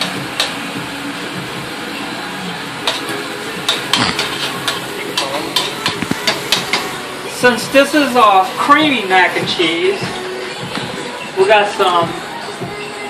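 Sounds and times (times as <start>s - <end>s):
vegetables sizzling in butter: 0.0s - 10.0s.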